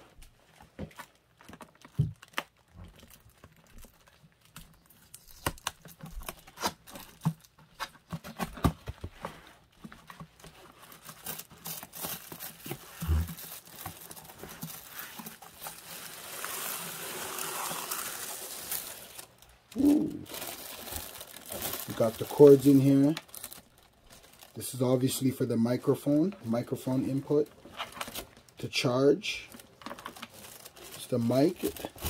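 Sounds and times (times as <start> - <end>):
plastic bag crinkling: 10.1 - 32.0.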